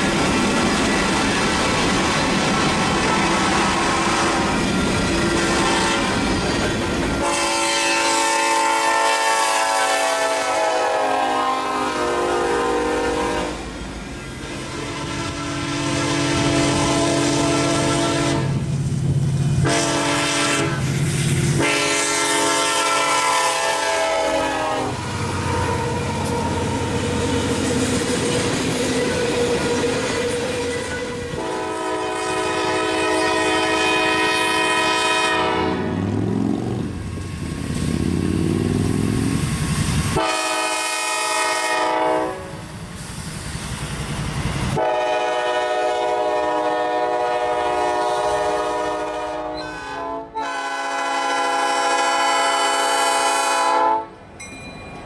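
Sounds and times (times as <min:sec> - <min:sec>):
wheels on rail: 0:00.0 - 0:09.1, 0:12.1 - 0:49.9, 0:54.2 - 0:55.0
locomotive air horn blasts: 0:03.2 - 0:04.6, 0:05.2 - 0:06.2, 0:07.2 - 0:13.7, 0:14.4 - 0:18.6, 0:19.6 - 0:20.9, 0:21.5 - 0:27.6, 0:28.9 - 0:36.2, 0:40.2 - 0:42.6, 0:44.8 - 0:54.2
engine rumble: 0:36.0 - 0:40.1.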